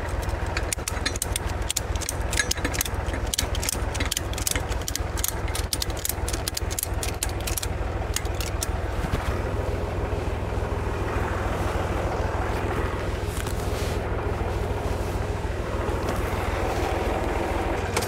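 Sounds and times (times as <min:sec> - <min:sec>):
sharp clicks and rattles: 0:00.0 - 0:08.9
tractor engine idling: 0:00.0 - 0:18.0.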